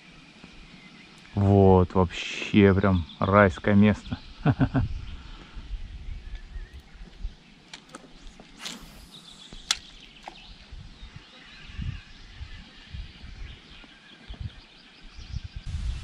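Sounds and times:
birds chirping faintly: 0:00.0 - 0:16.0
fishing rod swishing: 0:08.4 - 0:10.4
sharp reel click: 0:08.6 - 0:10.0.

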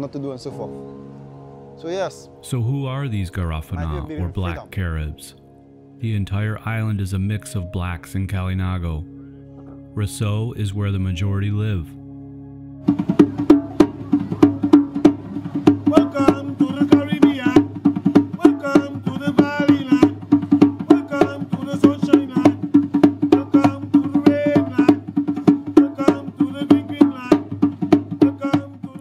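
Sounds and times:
person singing: 0:02.5 - 0:05.3, 0:15.8 - 0:17.7, 0:18.3 - 0:20.2, 0:20.8 - 0:22.7, 0:23.3 - 0:25.1, 0:25.7 - 0:27.5, 0:28.2 - 0:29.0
hand drums in quick rhythm: 0:12.9 - 0:29.0.

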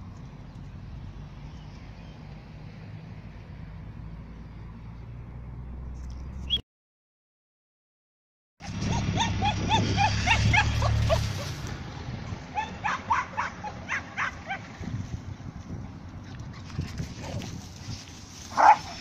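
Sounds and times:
small dog yipping: 0:08.6 - 0:11.6, 0:12.5 - 0:14.7, 0:18.6 - 0:19.0.

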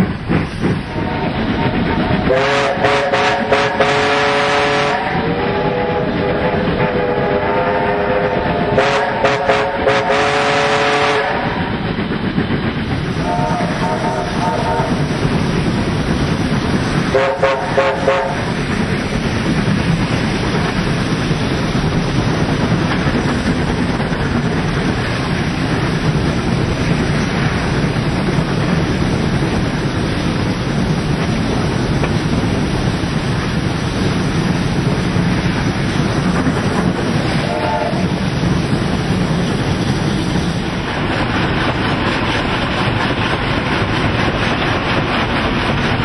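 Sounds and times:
steam train rumble: 0:00.0 - 0:46.0
train whistle blast: 0:00.9 - 0:11.6, 0:13.2 - 0:15.0, 0:17.1 - 0:18.4, 0:37.4 - 0:38.1.

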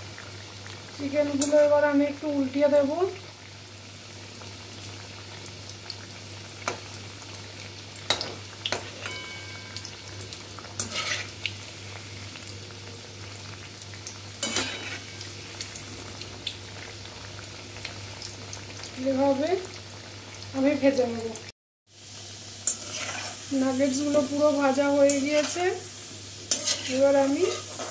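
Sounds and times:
deep-frying sizzle in oil: 0:00.0 - 0:27.9
spatula clicking and scraping pan: 0:08.1 - 0:09.3, 0:10.8 - 0:11.3, 0:14.4 - 0:15.1, 0:22.6 - 0:23.4, 0:26.5 - 0:27.9.

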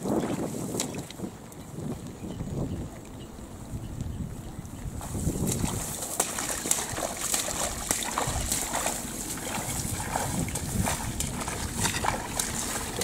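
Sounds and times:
boots sloshing through water: 0:00.0 - 0:02.0, 0:04.8 - 0:13.0.

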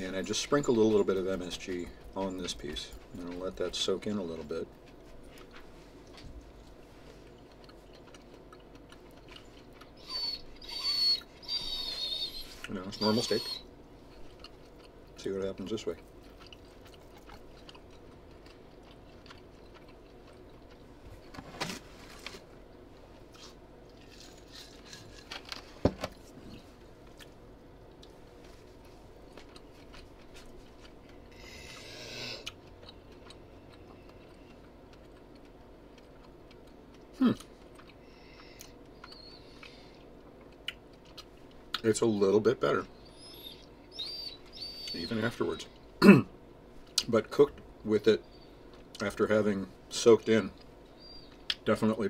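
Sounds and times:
low room hum: 0:00.0 - 0:52.0
person chewing: 0:04.3 - 0:12.8, 0:13.9 - 0:21.4, 0:22.6 - 0:41.9.

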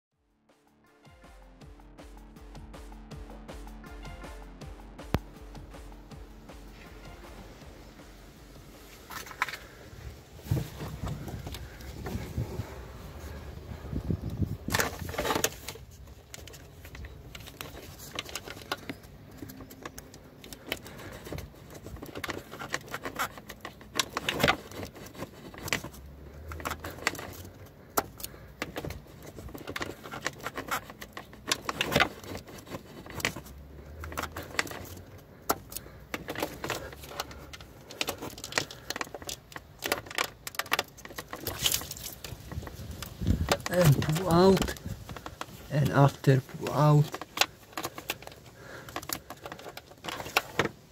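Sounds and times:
plastic plug clicks and rattles: 0:14.3 - 0:46.2, 0:47.0 - 0:50.9.

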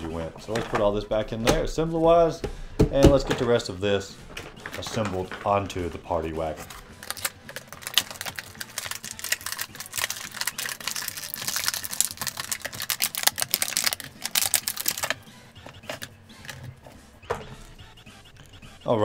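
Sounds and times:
plastic packaging crinkling: 0:06.5 - 0:15.2
small plastic pieces clicking: 0:07.0 - 0:15.2.

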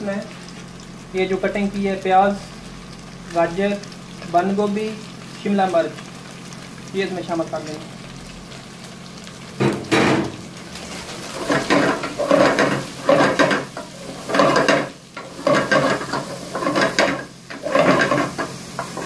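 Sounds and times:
vegetables sizzling in hot oil: 0:00.0 - 0:19.0
wooden spatula stirring and scraping: 0:10.8 - 0:19.0.

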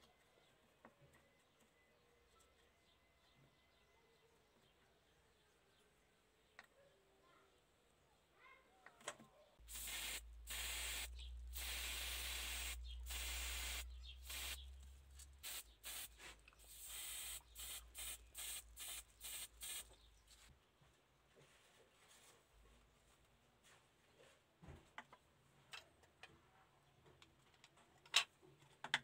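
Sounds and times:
spray paint hissing: 0:09.6 - 0:20.5.

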